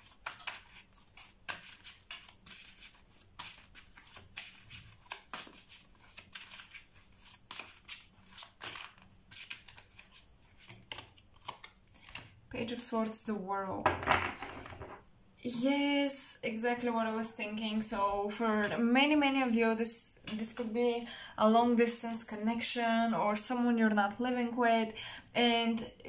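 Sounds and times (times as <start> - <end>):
cards being shuffled: 0.0 - 12.4.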